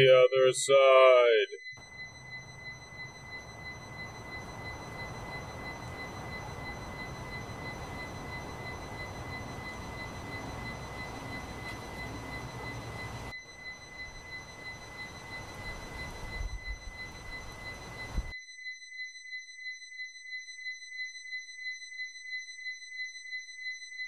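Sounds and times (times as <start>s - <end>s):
high-pitched whine: 0.0s - 18.9s
low rumble and hiss: 2.2s - 13.3s.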